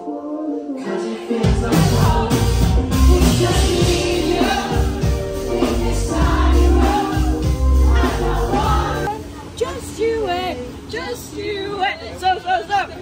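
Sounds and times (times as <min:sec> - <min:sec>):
audience singing along: 0:00.0 - 0:10.2.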